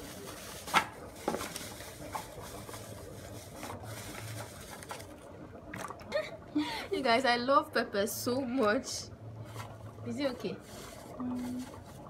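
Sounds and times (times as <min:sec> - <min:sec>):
plastic bag rustling: 0:00.0 - 0:05.3.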